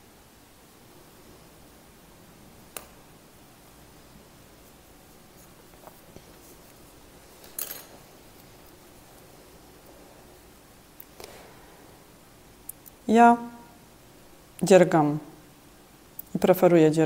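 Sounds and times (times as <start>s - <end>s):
yarn rubbing through fingers: 4.4s - 7.4s.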